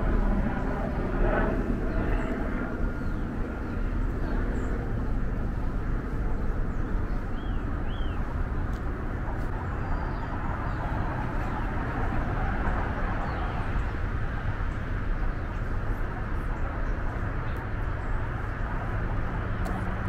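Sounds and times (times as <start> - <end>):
distant road traffic: 0.0 - 20.0
bird chirps: 7.1 - 8.3.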